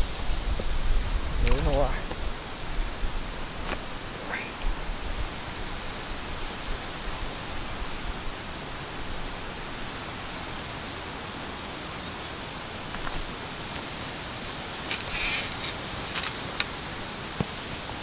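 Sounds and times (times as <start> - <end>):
wind hissing: 0.0 - 18.0.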